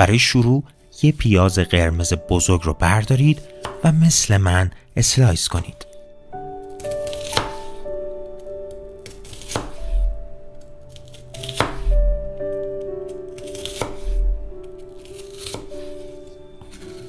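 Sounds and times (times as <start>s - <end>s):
knife slicing onion on board: 6.8s - 7.8s, 9.1s - 10.1s, 11.0s - 12.0s, 13.4s - 14.4s, 15.0s - 17.0s
music with soft low beat: 11.8s - 13.1s.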